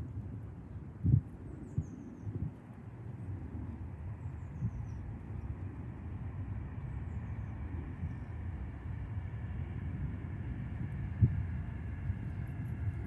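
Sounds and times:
distant vehicle rumble: 0:02.9 - 0:13.0.

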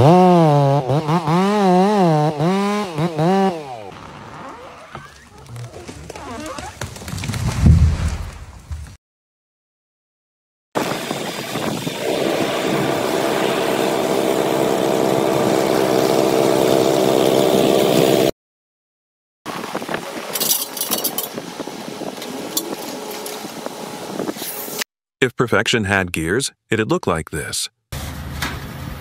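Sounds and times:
small engine running: 0:10.8 - 0:18.3.

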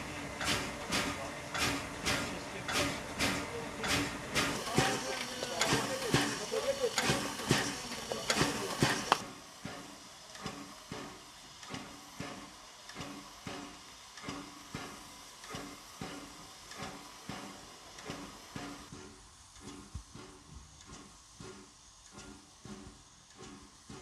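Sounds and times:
locomotive air pump beating: 0:00.0 - 0:24.0
steady steam hiss: 0:00.0 - 0:24.0.

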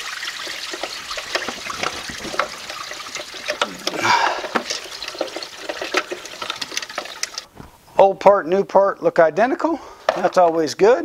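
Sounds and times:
coolant trickling and splashing: 0:00.0 - 0:07.5.

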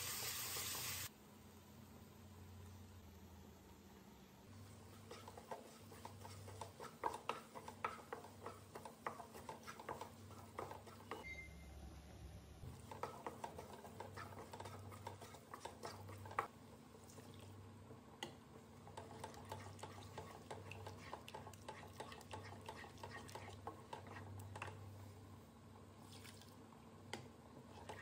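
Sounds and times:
spatula stirring wet gravy: 0:04.6 - 0:11.2, 0:12.7 - 0:17.6, 0:18.2 - 0:25.0, 0:27.1 - 0:28.0
spatula tapping pan: 0:04.8 - 0:11.2, 0:12.7 - 0:16.5, 0:18.2 - 0:24.8.

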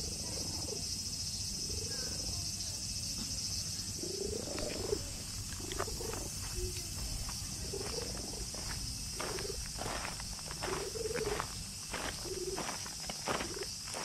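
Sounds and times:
cat purring: 0:04.0 - 0:06.7.

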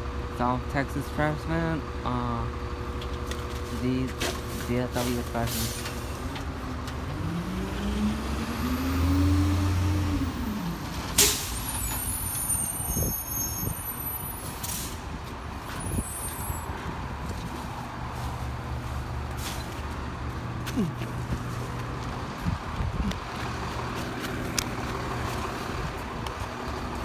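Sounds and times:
truck diesel engine revving: 0:05.5 - 0:12.6, 0:15.7 - 0:27.0.

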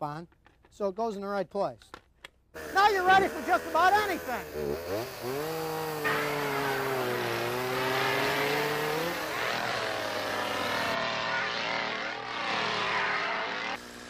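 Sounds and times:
chainsaw engine at high revs: 0:02.6 - 0:14.0.

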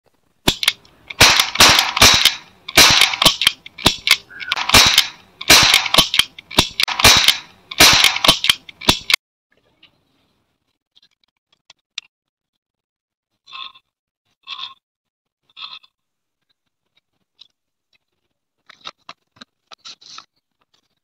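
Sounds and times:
cap gun cracks: 0:00.5 - 0:09.2.

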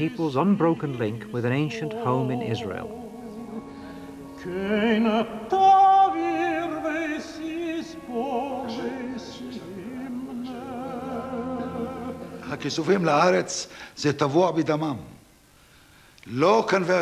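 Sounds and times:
person singing ornamented melody: 0:00.0 - 0:13.5.

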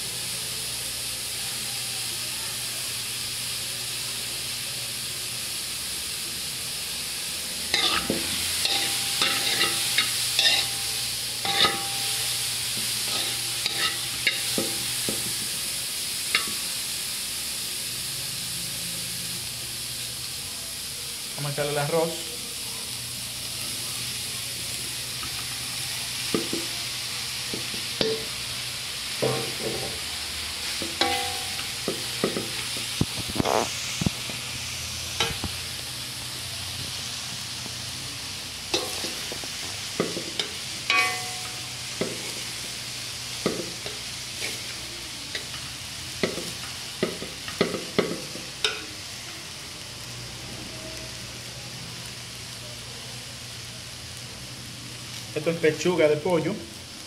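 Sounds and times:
rice and vegetables sizzling in pan: 0:00.0 - 0:57.0
metal spoon scraping metal pan: 0:07.8 - 0:10.8, 0:11.4 - 0:12.1, 0:13.0 - 0:14.7.

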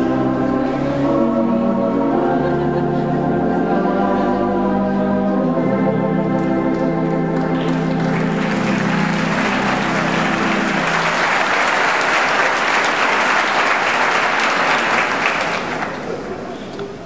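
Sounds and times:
organ held chord: 0:00.0 - 0:15.8
audience applauding: 0:07.4 - 0:16.5.

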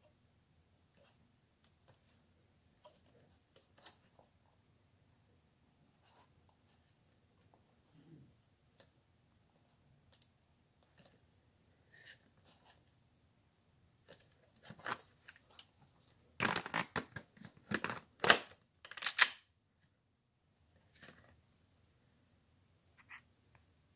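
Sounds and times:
plastic toy gun clicking and rattling: 0:16.4 - 0:19.5.

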